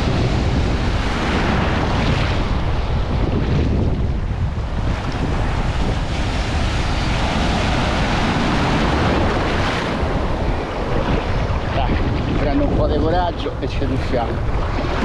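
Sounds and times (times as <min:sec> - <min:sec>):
waves breaking: 0:00.0 - 0:15.0
wind rumble on microphone: 0:00.0 - 0:15.0.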